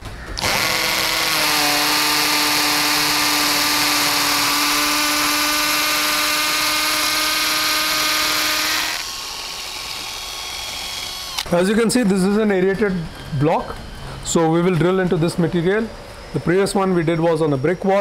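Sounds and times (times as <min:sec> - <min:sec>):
cordless drill boring into brick: 0:00.4 - 0:11.5.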